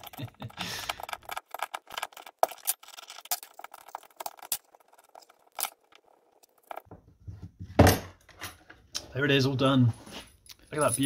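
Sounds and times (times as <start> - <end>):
small metallic clicks and clinks: 10.4 - 11.0.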